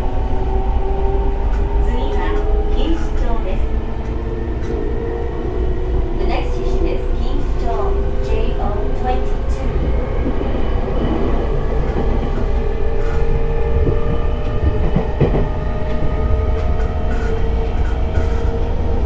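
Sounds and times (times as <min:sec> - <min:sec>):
train wheels rumbling on rail: 0:00.0 - 0:19.0
train whine: 0:00.0 - 0:19.0.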